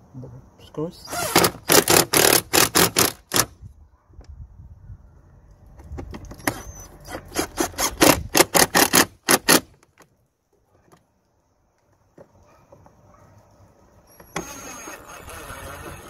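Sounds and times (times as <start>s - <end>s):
cordless drill driving screws: 1.1s - 3.5s, 6.4s - 9.7s, 14.1s - 16.0s
rapid sharp clutch clicks: 7.4s - 9.7s.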